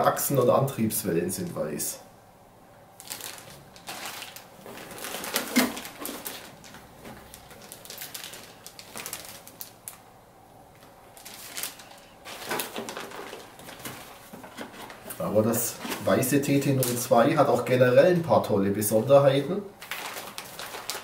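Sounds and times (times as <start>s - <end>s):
plastic bags crinkling: 3.0s - 10.1s, 10.7s - 18.3s, 19.8s - 21.0s.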